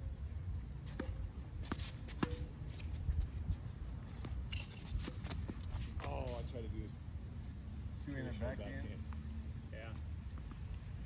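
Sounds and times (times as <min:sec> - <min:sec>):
tennis racket hitting ball: 0:00.9 - 0:02.5
ball bouncing: 0:00.9 - 0:02.7.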